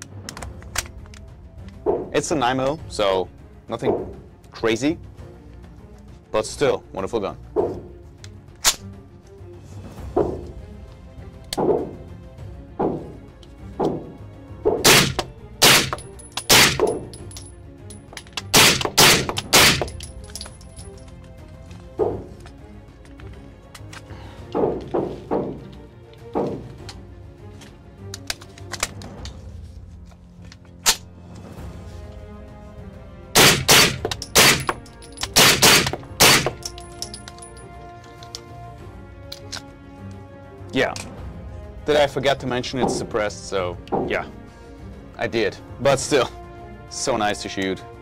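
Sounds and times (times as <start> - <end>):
background music: 0.0 - 48.0
suppressed gunshots: 14.7 - 16.9, 33.4 - 34.7.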